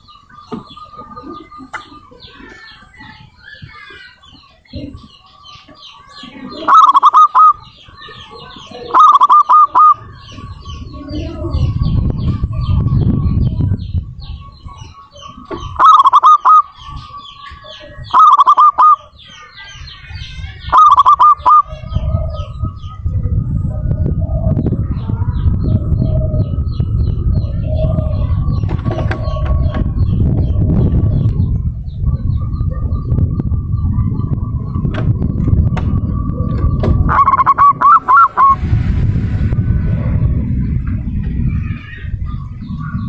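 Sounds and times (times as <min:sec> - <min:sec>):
small birds chirping: 0:00.0 - 0:38.6, 0:40.3 - 0:43.0
low rumbling noise: 0:00.0 - 0:43.0
dove cooing: 0:04.7 - 0:13.0, 0:13.6 - 0:19.3, 0:20.6 - 0:38.6.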